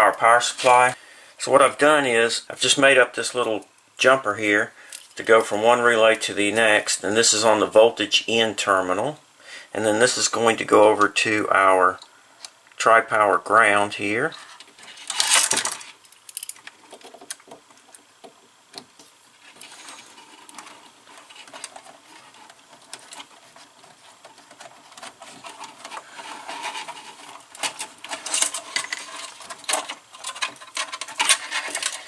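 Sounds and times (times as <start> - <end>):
faint steady hum: 0.0 - 32.0
wires clicking and rustling: 14.3 - 32.0.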